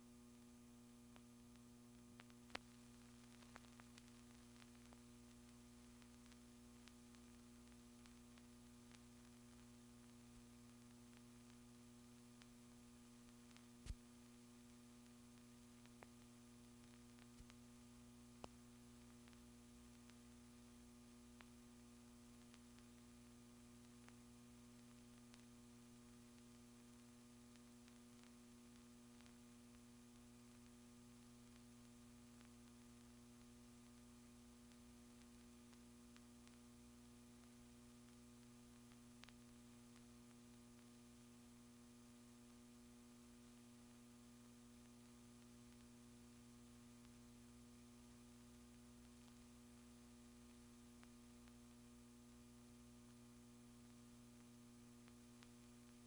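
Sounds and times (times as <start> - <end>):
low electrical hum: 0.0 - 56.0
faint clicks: 1.1 - 11.6, 18.4 - 20.2, 37.4 - 41.0.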